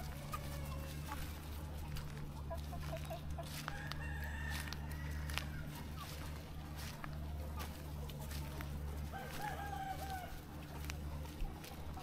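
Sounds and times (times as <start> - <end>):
chickens clucking: 0.0 - 12.0
steady low hum: 0.0 - 12.0
rooster crowing: 3.6 - 5.8, 9.0 - 10.4.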